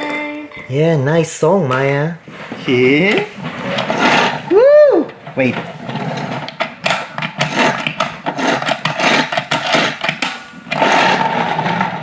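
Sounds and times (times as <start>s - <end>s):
toy truck whirring: 7.3s - 12.0s.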